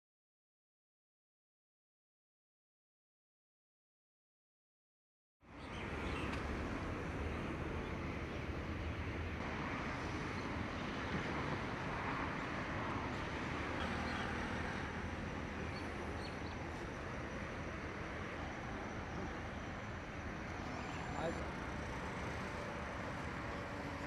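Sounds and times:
distant traffic noise: 5.4s - 24.0s.

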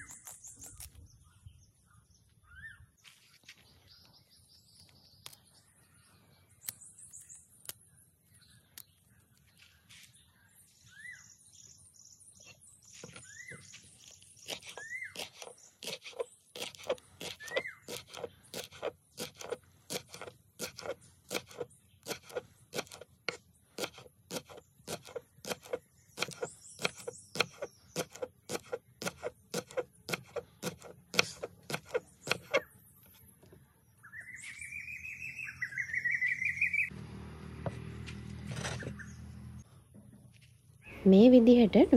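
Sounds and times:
birds chirping: 0.0s - 37.0s, 38.3s - 41.9s
knife chopping on cutting board: 14.5s - 32.6s.

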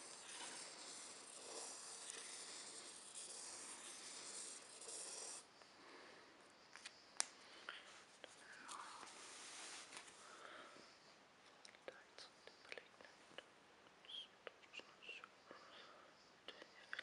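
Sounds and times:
pen scratching on paper: 0.0s - 5.5s.

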